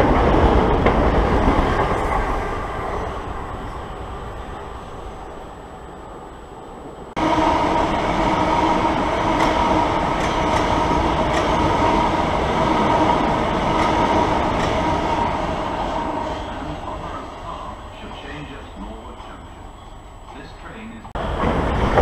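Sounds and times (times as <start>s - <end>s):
electric train running past: 0.0s - 22.0s
wheels clicking over rail joints: 9.4s - 12.0s.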